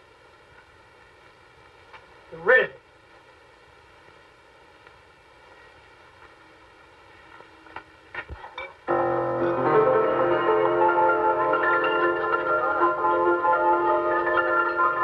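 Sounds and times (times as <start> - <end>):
keyboard music chords: 8.9 - 15.0.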